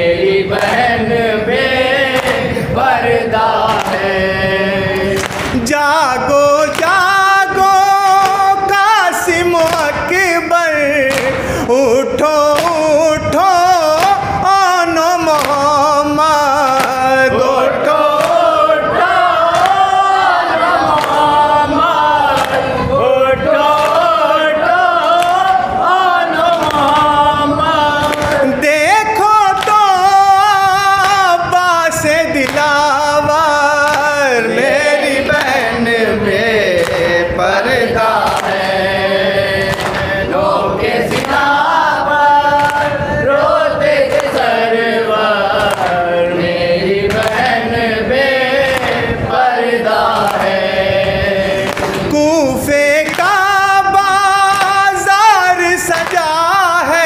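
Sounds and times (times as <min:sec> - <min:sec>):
man chanting into a microphone: 0:00.0 - 0:57.0
voices joining in chant: 0:00.0 - 0:57.0
chest-beating slaps: 0:00.5 - 0:00.9, 0:02.1 - 0:02.6, 0:03.5 - 0:04.2, 0:04.9 - 0:05.8, 0:06.4 - 0:10.3, 0:11.0 - 0:11.6, 0:12.2 - 0:12.9, 0:15.3 - 0:15.8, 0:16.6 - 0:17.3, 0:18.0 - 0:19.9, 0:20.9 - 0:21.4, 0:22.3 - 0:23.0, 0:23.6 - 0:24.2, 0:26.4 - 0:27.2, 0:28.0 - 0:28.5, 0:29.6 - 0:29.9, 0:32.4 - 0:34.2, 0:36.7 - 0:37.2, 0:38.1 - 0:38.8, 0:39.4 - 0:44.6, 0:45.5 - 0:46.1, 0:47.1 - 0:47.6, 0:48.6 - 0:49.2, 0:50.0 - 0:52.2, 0:52.8 - 0:53.7, 0:54.4 - 0:54.9, 0:55.9 - 0:56.4.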